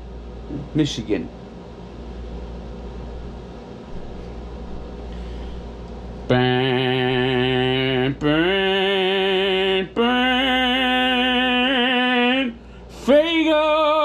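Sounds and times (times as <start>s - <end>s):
man singing long notes: 6.3s - 14.0s.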